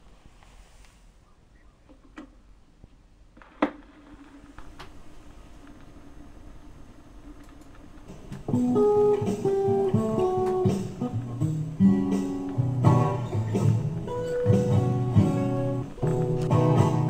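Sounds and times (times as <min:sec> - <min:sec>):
plucked guitar with bass notes: 0:08.5 - 0:17.0.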